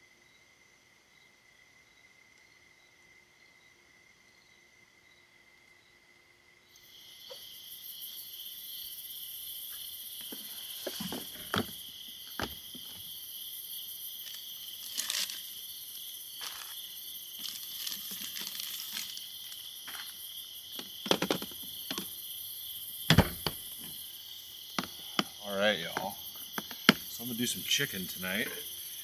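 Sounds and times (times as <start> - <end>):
night insects chirping: 0.0 - 29.0
plastic rustling: 17.4 - 19.6.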